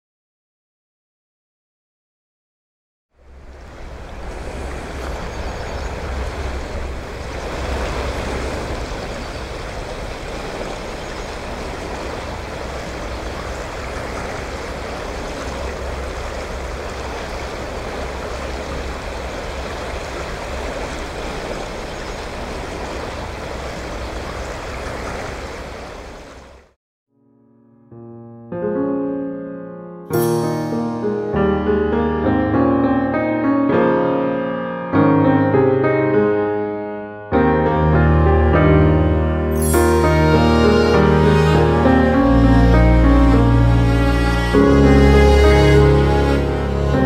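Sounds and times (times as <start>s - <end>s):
river water rushing: 3.2s - 26.7s, 39.6s - 47.0s.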